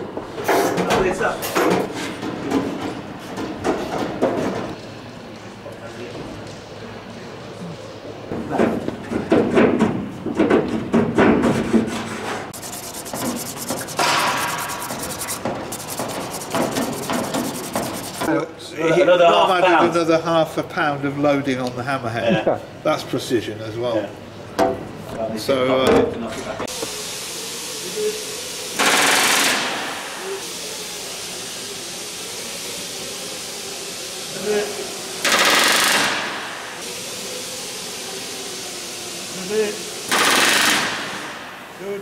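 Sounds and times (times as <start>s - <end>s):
hand sanding metal: 12.6s - 18.3s
pneumatic rivet gun hammering: 28.8s - 29.9s, 35.2s - 36.5s, 40.1s - 41.4s.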